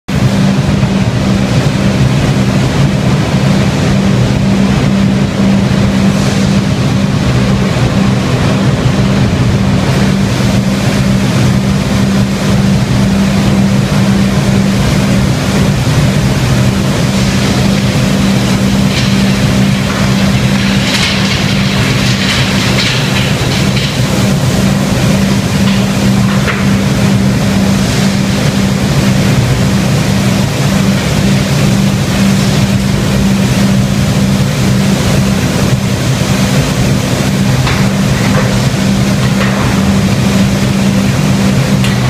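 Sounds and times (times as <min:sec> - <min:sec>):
machine drone: 0:00.0 - 0:42.0.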